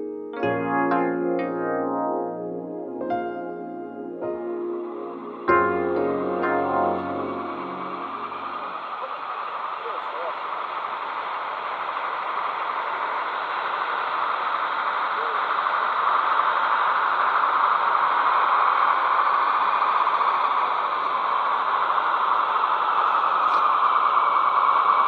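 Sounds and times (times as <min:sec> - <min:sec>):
model train wheels on rails: 0:06.1 - 0:25.0.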